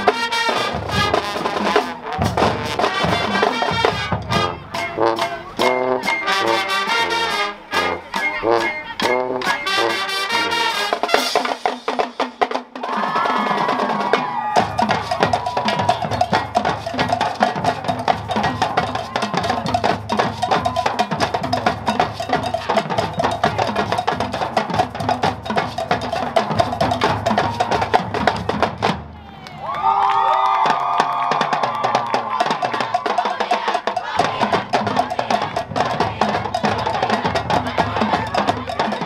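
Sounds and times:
horns holding long notes: 0.0s - 11.6s
fast percussion and drums: 0.0s - 29.2s, 29.8s - 39.0s.

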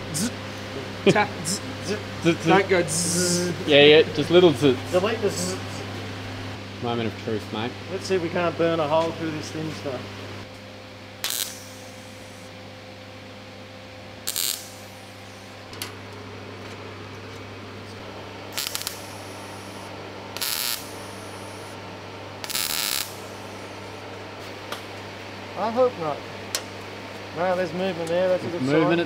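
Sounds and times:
steady low hum: 0.0s - 29.0s
welding arc bursts: 11.2s - 12.5s, 14.2s - 15.6s, 18.5s - 21.8s, 22.4s - 23.6s.

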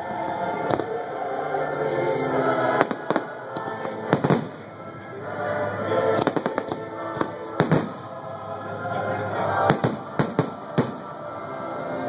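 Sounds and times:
background music: 0.0s - 12.0s
fireworks bangs: 4.1s - 4.7s, 6.2s - 8.1s, 9.6s - 11.1s.

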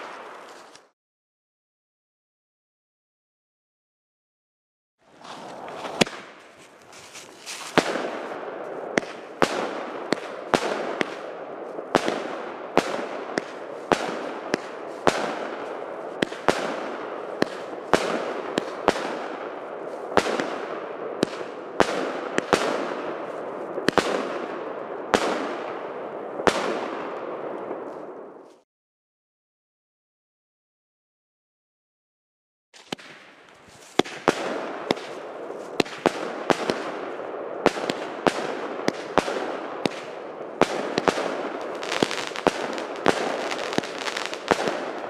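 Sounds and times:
firework reports: 5.1s - 27.0s
dense crackling of bursting stars: 5.1s - 28.6s, 32.8s - 45.0s.

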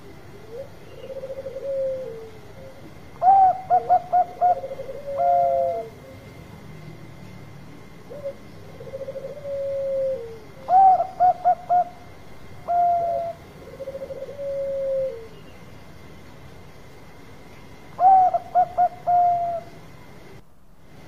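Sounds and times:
dove cooing and trilling: 0.0s - 6.4s, 8.0s - 15.6s, 17.9s - 20.2s.

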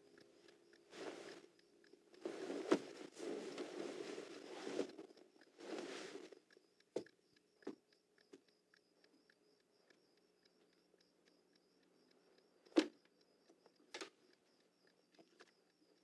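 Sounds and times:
bedclothes rustling: 0.9s - 1.4s, 2.2s - 6.4s
soft footsteps on wooden floor: 2.2s - 6.2s.

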